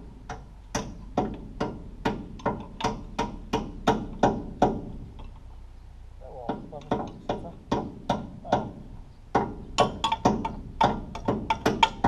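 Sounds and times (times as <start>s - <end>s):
hammer striking metal: 6.5s - 12.0s.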